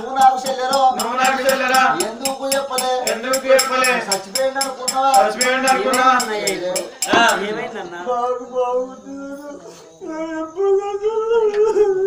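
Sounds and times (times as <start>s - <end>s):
small hand cymbals beating: 0.0s - 7.5s
men singing folk chant: 0.0s - 12.0s.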